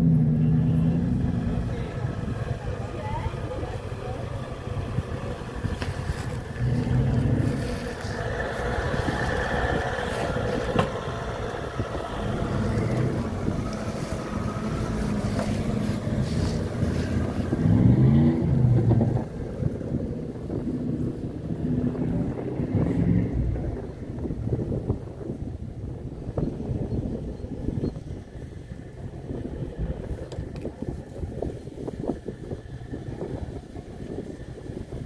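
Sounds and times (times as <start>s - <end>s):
engine revving: 0.0s - 5.1s, 5.8s - 19.7s, 20.5s - 24.0s
truck engine running under load: 0.0s - 25.3s.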